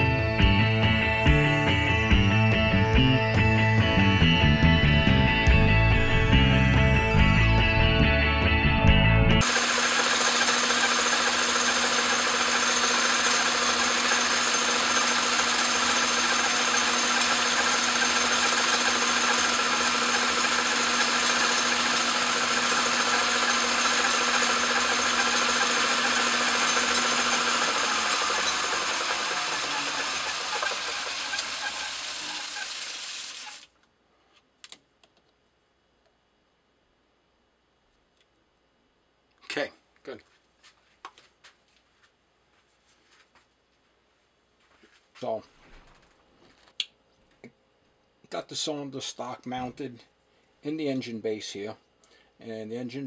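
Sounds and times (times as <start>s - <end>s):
lathe spinning down: 9.4s - 33.7s
metal lathe running: 9.4s - 33.7s.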